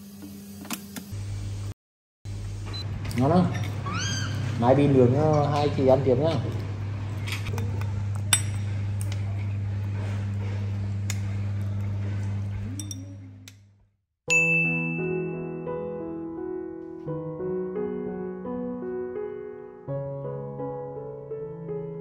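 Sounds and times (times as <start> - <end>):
soft piano music: 14.3 - 22.0.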